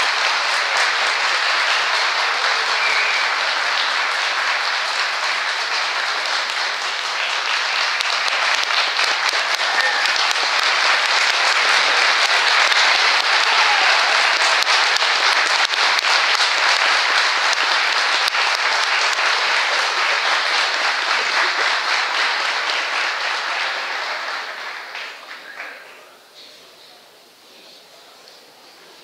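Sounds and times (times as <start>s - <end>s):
audience applauding: 0.0s - 26.3s.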